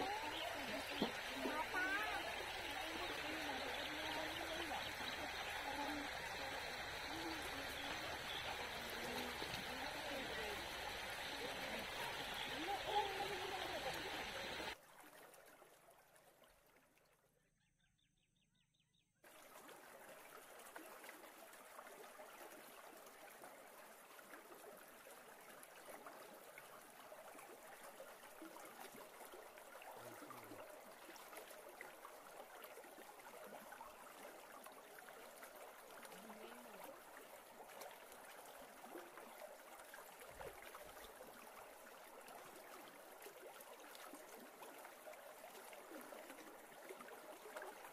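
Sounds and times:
river water rushing: 0.0 - 14.8.

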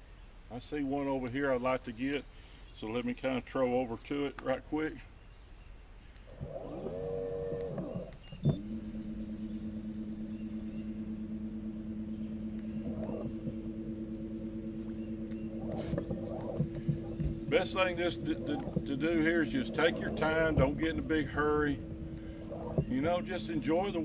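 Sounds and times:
electric motor whine and hum: 6.3 - 24.0
click: 7.6 - 8.6, 12.5 - 14.2.

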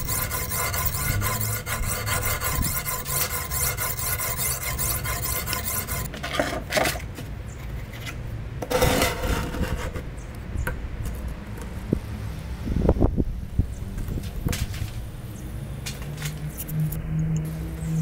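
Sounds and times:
knife scraping on sharpening stone: 0.0 - 6.1.

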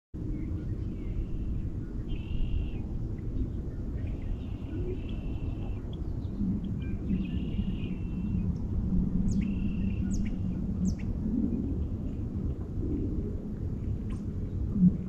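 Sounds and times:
low hum: 0.2 - 15.0
lake ice singing: 3.7 - 11.9.

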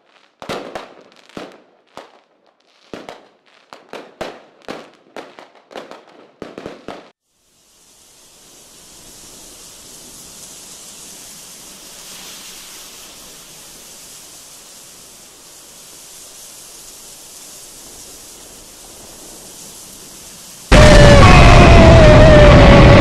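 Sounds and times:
rushing hiss: 7.1 - 23.0.

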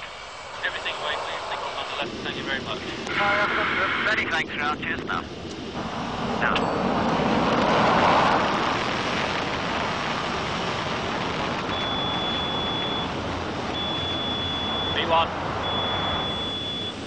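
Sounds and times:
jet engines roaring at takeoff: 0.0 - 17.0.

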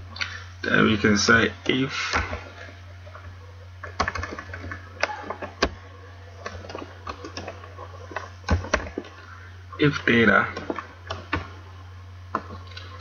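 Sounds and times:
steady low hum: 0.0 - 13.0
computer keyboard typing: 3.8 - 5.8, 6.4 - 9.1.

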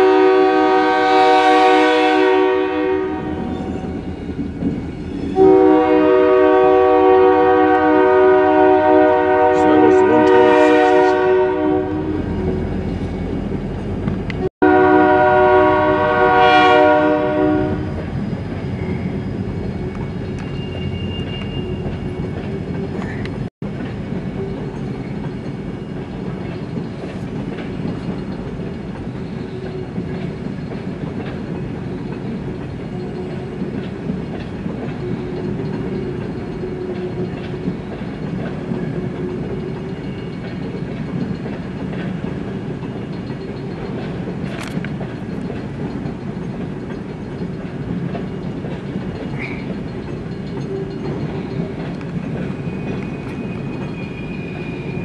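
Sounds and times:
locomotive horn: 0.0 - 3.9, 5.4 - 12.4, 14.6 - 18.0
freight train cars clattering: 0.0 - 55.0.

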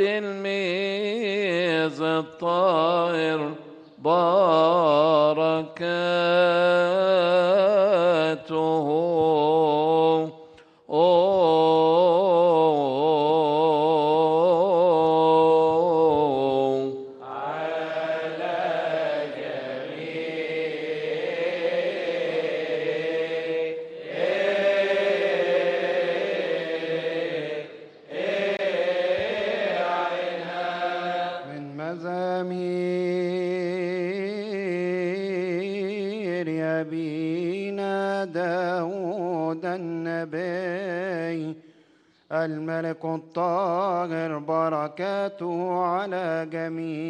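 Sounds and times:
liturgical chanting: 0.0 - 41.6, 42.3 - 47.0.

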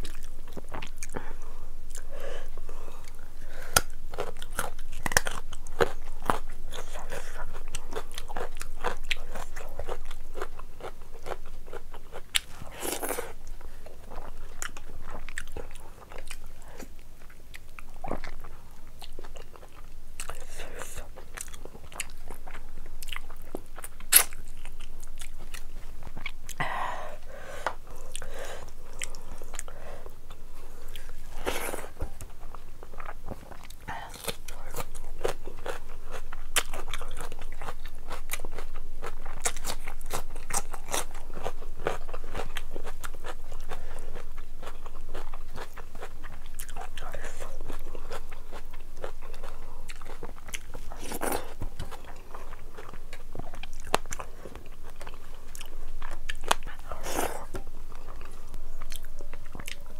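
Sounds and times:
chewing food: 0.0 - 26.9, 27.6 - 59.9
small mouth clicks and crackles: 23.1 - 26.6.

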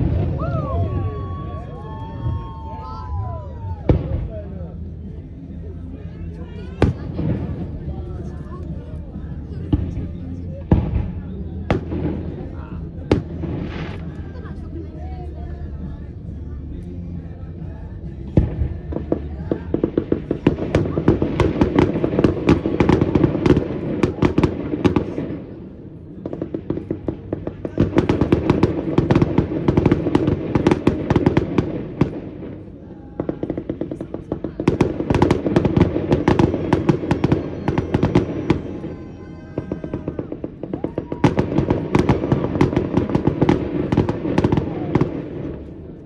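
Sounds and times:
fireworks crackling pops: 6.8 - 14.4, 18.3 - 25.6, 26.2 - 46.0.

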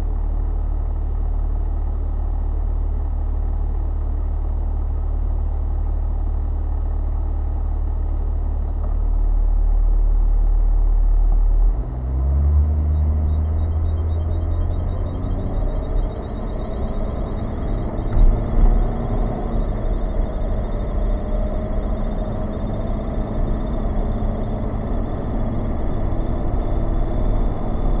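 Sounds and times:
road rumble: 5.4 - 28.0
vehicle engine accelerating: 11.6 - 28.0.

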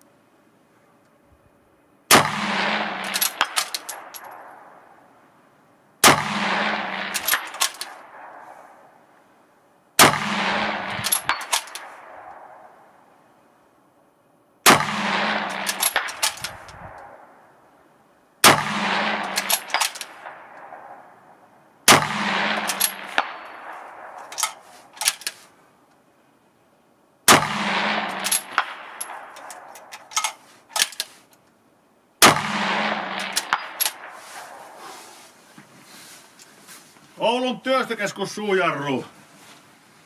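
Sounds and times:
rifle shots echoing: 2.1 - 5.1, 6.0 - 9.1, 10.0 - 13.0, 14.6 - 17.6, 18.4 - 25.2, 27.3 - 30.9, 32.2 - 35.0.

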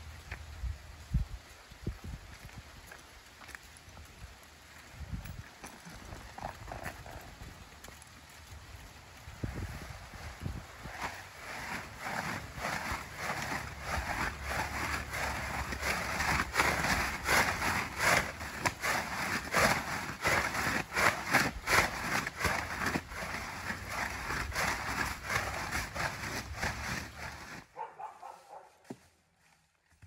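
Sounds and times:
plastic tarp crinkling and flapping: 5.8 - 27.7.

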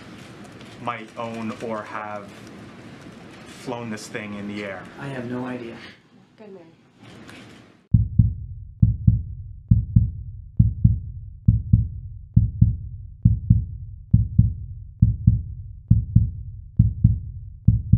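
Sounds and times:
heartbeat-like low thumps: 7.9 - 17.9.

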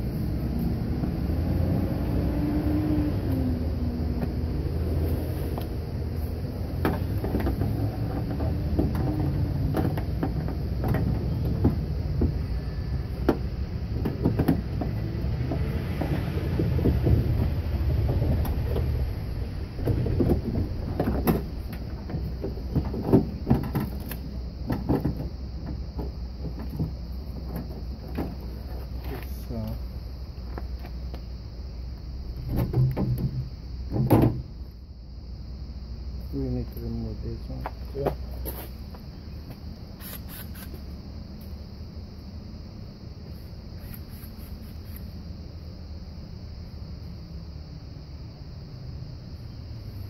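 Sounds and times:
steady low rumble: 3.1 - 40.0.

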